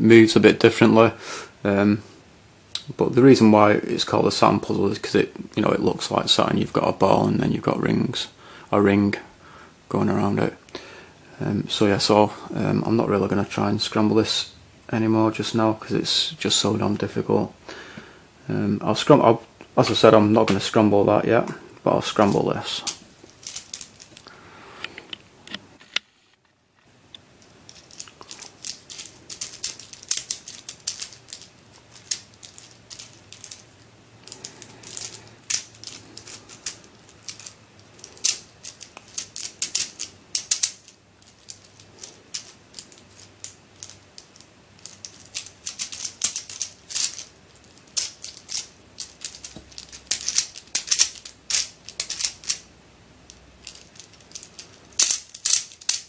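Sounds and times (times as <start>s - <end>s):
plastic puzzle clicking and rattling: 22.8s - 24.2s, 27.4s - 52.7s, 53.3s - 56.0s.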